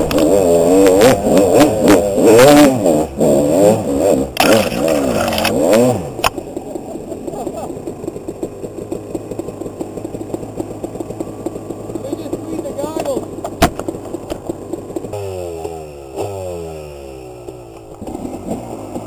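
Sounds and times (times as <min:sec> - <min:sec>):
dirt bike engines idling: 0:00.0 - 0:19.0
engine revving: 0:00.0 - 0:19.0
sharp click: 0:04.4 - 0:05.6.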